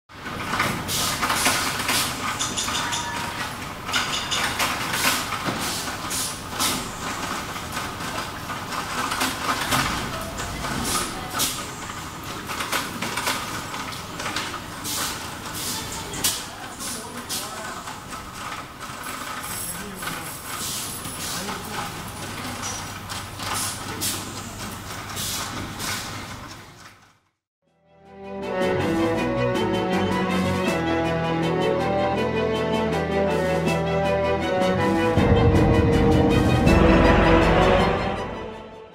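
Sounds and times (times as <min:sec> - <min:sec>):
machinery clicks and clatter: 0:00.1 - 0:27.4
clattering: 0:00.4 - 0:05.5
machinery humming: 0:28.6 - 0:38.9.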